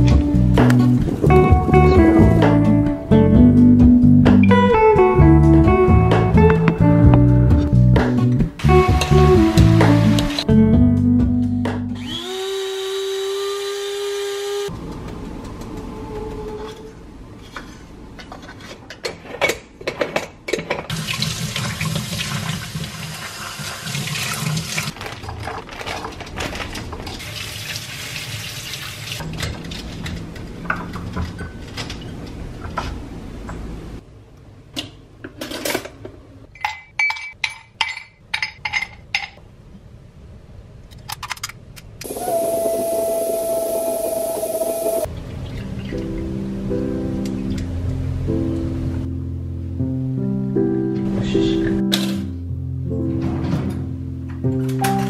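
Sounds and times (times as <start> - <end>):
coffee grinder whirring: 12.0 - 14.7, 42.0 - 45.1
tap water running: 20.9 - 25.0, 27.2 - 29.2, 42.1 - 45.1.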